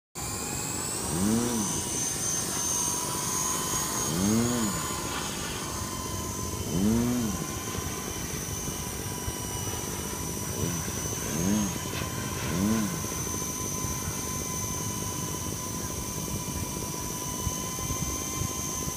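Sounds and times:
low hum shifting pitch: 0.2 - 18.9
toy helicopter rotors whining: 0.2 - 18.9.

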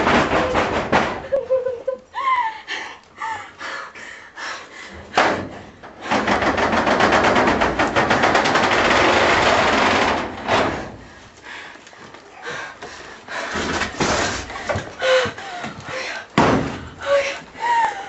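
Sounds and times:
loud rapid rattling: 6.0 - 11.0
loud thud: 16.4 - 17.0.

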